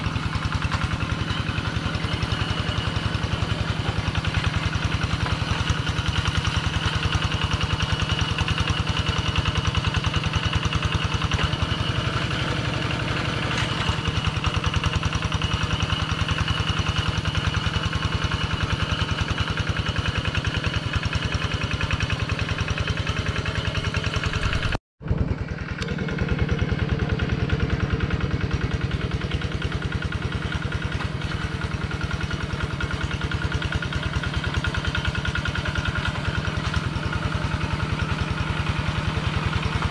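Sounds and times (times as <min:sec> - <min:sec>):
diesel engine chugging: 0:00.0 - 0:39.9.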